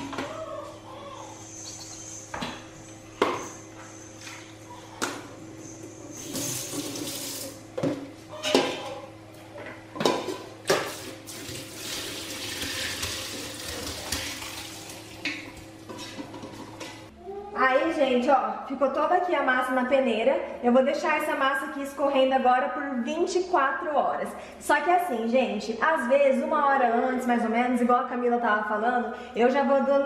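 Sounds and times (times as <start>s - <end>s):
whey splashing into sink: 10.8s - 15.7s.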